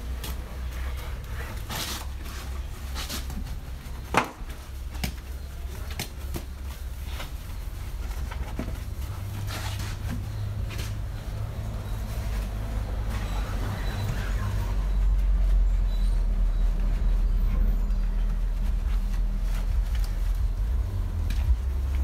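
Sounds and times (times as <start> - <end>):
wash mitt scrubbing car: 0.0 - 22.0.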